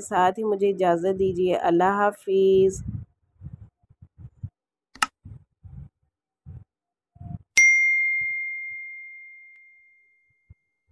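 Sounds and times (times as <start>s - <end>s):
faint low blips: 2.8s - 7.5s
bright bell ding: 7.6s - 10.4s.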